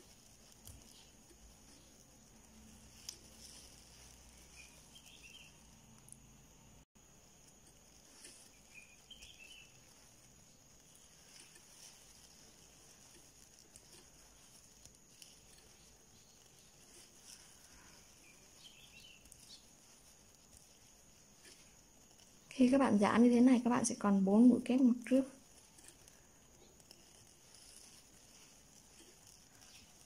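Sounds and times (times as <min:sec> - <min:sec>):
faint hiss with high tone: 0:00.0 - 0:26.8
faint high chirps: 0:00.8 - 0:10.6.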